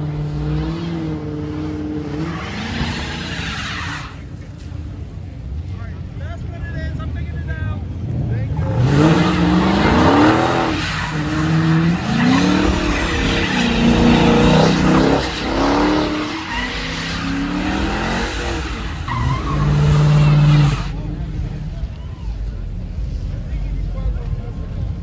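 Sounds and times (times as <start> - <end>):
tires spinning and skidding: 0.0 - 5.2, 8.5 - 23.4
car engine revving: 7.1 - 21.8.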